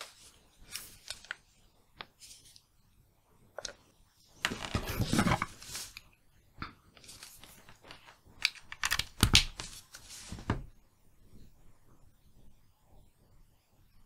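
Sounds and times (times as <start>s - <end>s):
handling noise of devices: 4.4s - 6.2s, 6.9s - 10.7s.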